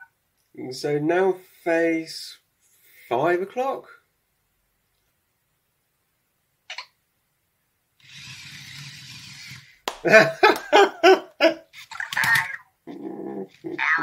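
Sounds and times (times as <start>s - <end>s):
robot motors whirring: 8.0s - 9.7s.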